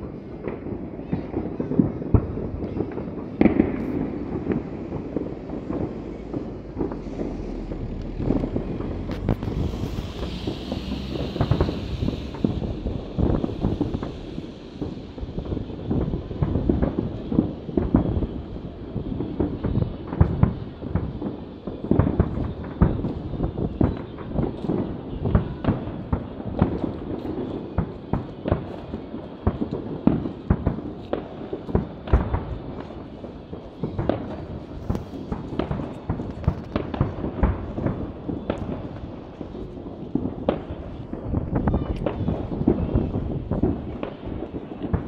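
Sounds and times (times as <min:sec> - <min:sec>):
fireworks bangs and crackles: 0:00.0 - 0:45.0.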